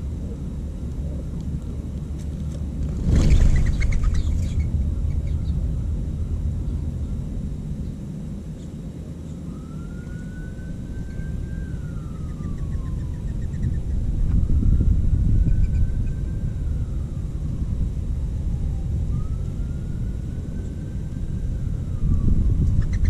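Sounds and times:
wind on microphone: 2.6 - 8.0, 10.7 - 23.0
doves wingbeats: 2.9 - 5.6.

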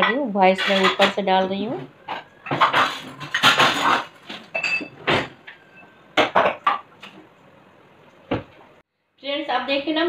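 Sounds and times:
metal utensils and pans clattering: 0.0 - 6.8.

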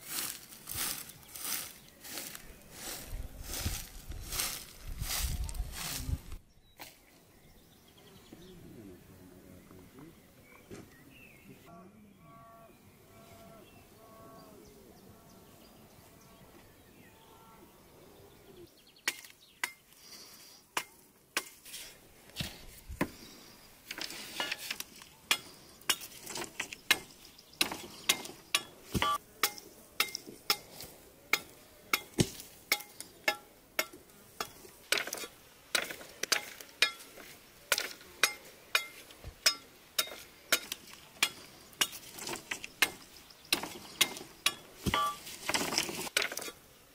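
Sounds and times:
bird calling: 6.8 - 18.8.

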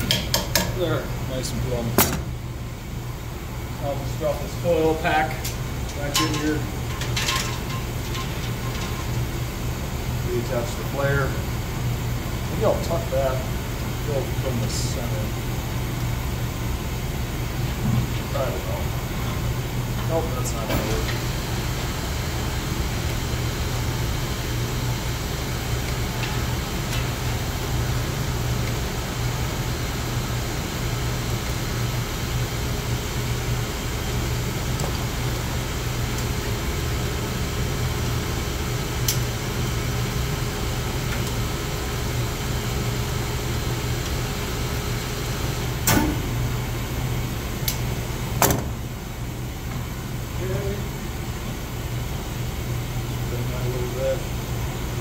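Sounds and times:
low machinery hum: 0.0 - 55.0.

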